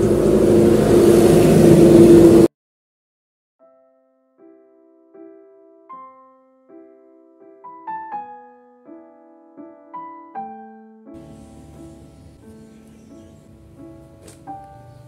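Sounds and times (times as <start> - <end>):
soft solo piano music: 3.6 - 15.0.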